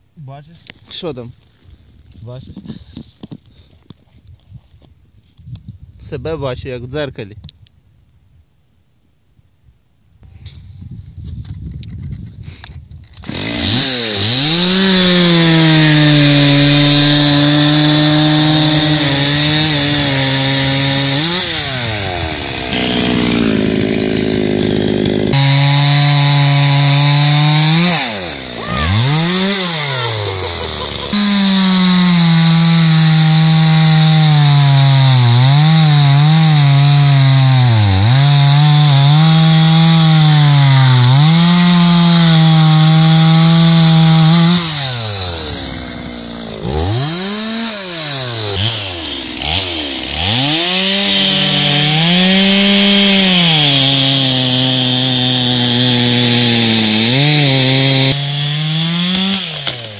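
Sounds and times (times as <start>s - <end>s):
chainsaw cutting through log: 13.1s - 59.9s.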